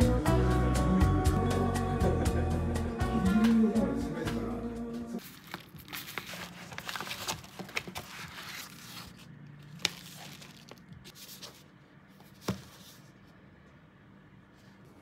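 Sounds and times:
cardboard tearing and crinkling: 5.2s - 11.6s
book knocking on table: 12.4s - 12.8s.

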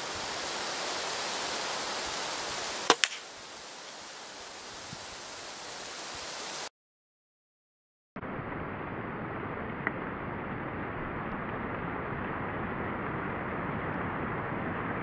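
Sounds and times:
outdoor hiss: 0.0s - 6.7s
airgun shot: 2.9s - 3.3s
pellet hitting plastic target: 2.9s - 3.3s.

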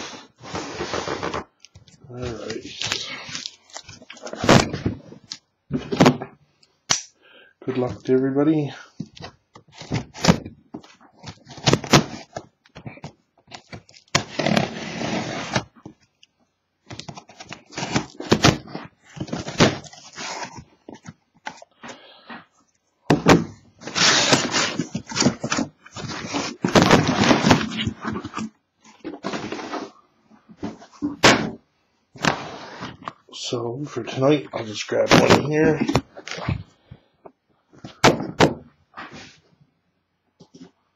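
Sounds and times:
cardboard scraping and rustling: 0.0s - 1.5s, 13.5s - 15.8s, 17.0s - 21.6s, 23.2s - 30.0s, 32.2s - 33.1s
knife slitting cardboard: 23.8s - 28.4s
dull knocks of boxes: 38.0s - 38.6s.

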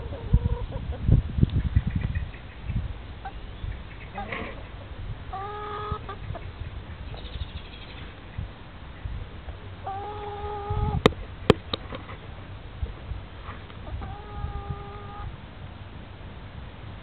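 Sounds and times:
chicken calling: 3.2s - 8.4s, 9.8s - 11.1s, 13.8s - 15.3s.

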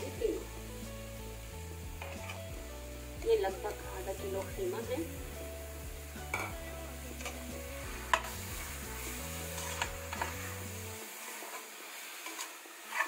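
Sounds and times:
faint sizzle: 0.0s - 13.0s
metal spoon scraping a pot: 9.5s - 10.5s, 11.3s - 13.0s.

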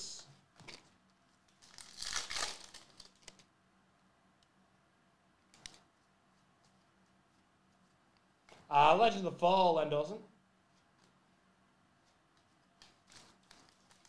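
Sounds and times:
foil wrapper crinkling and tearing: 1.5s - 3.5s, 12.8s - 14.0s.

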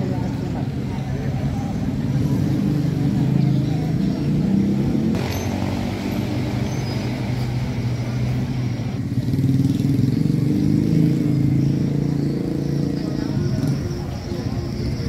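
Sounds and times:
vehicle engine running: 3.2s - 10.6s.

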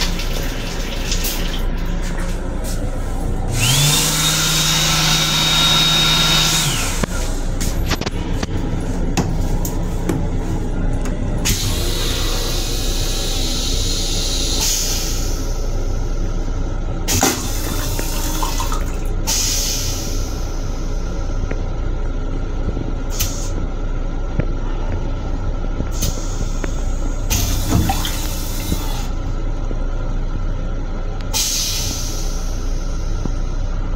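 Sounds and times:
toilet water spraying: 0.0s - 2.4s, 17.1s - 20.2s, 27.3s - 29.2s
railcar low rumble: 1.5s - 3.8s, 6.6s - 33.9s.

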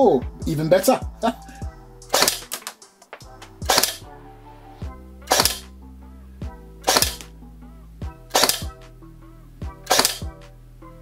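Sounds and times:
music with steady beat: 0.0s - 11.0s
airsoft gun shots: 2.1s - 2.8s, 3.7s - 4.0s, 5.3s - 5.7s, 6.8s - 7.3s, 8.3s - 8.8s, 9.9s - 10.3s
gearbox cycling: 6.8s - 7.3s, 8.3s - 8.7s, 9.8s - 10.3s.

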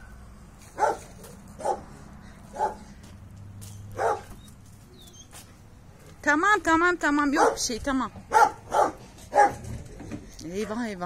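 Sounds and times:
dog barking: 0.8s - 1.9s, 2.5s - 2.9s, 3.9s - 4.4s, 7.4s - 7.6s, 8.3s - 9.7s.

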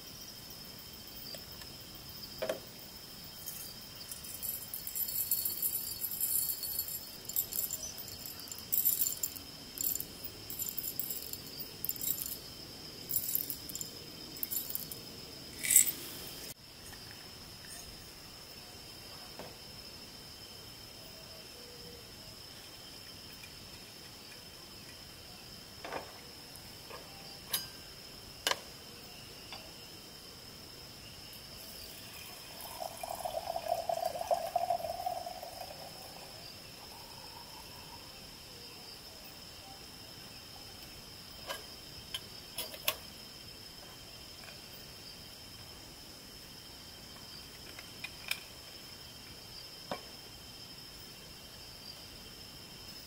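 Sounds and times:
insects chirring: 0.0s - 53.0s
utensils clinking: 3.4s - 12.4s, 13.1s - 15.0s, 15.6s - 16.0s
liquid pouring into a cup: 31.9s - 37.9s.

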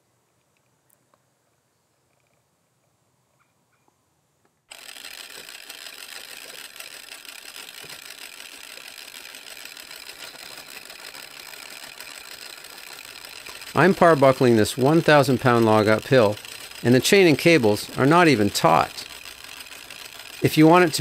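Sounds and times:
winch motor whirring: 4.7s - 21.0s.

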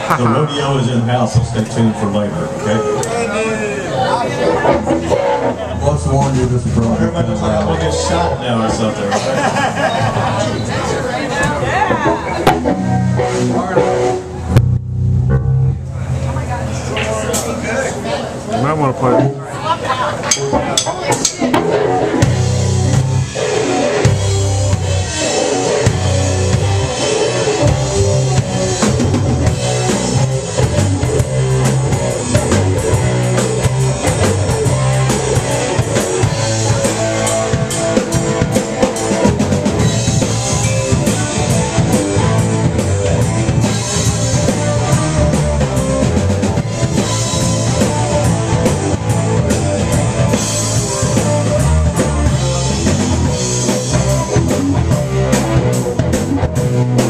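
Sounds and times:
rock band playing: 0.0s - 57.0s.

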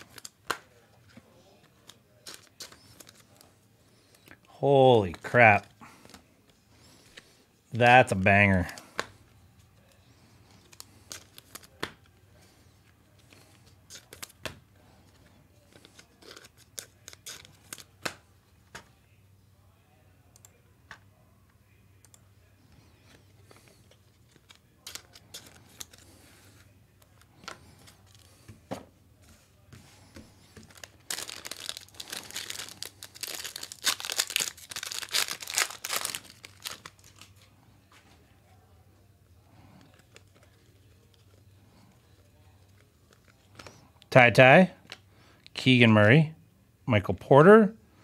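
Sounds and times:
foil wrapper crinkling and tearing: 1.8s - 3.5s, 10.6s - 11.8s, 15.7s - 18.0s, 23.7s - 26.3s, 30.6s - 37.5s.

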